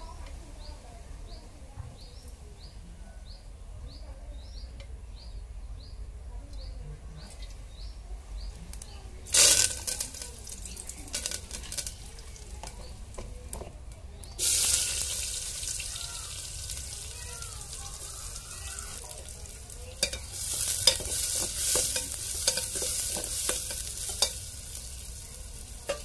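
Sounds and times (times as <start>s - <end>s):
onions sizzling in hot oil: 8.7s - 26.0s
scattered crackles: 8.7s - 26.0s
brief loud hiss: 9.3s - 10.0s, 14.4s - 15.6s.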